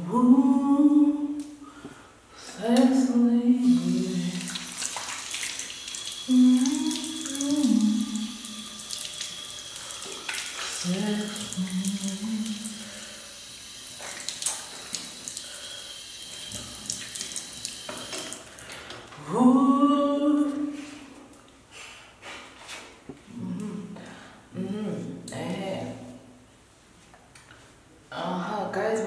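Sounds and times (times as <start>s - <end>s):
woman singing: 0.0s - 1.6s, 2.4s - 4.5s, 6.3s - 8.4s, 10.7s - 12.8s, 19.2s - 21.0s
water splashing on face: 3.8s - 13.0s, 13.9s - 15.5s
tap running into sink: 16.4s - 18.4s.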